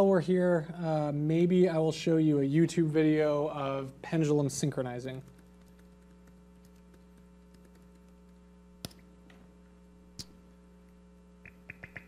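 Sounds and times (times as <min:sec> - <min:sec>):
electrical mains hum: 0:00.0 - 0:12.0
laptop keystrokes: 0:05.3 - 0:09.0, 0:11.5 - 0:12.0.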